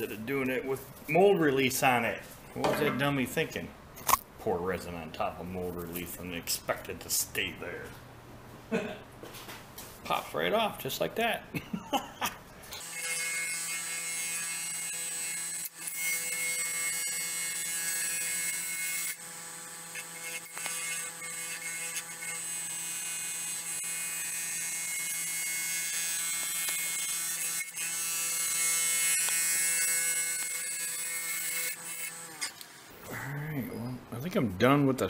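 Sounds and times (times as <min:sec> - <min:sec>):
turning tool cutting resin: 0:12.8 - 0:32.9.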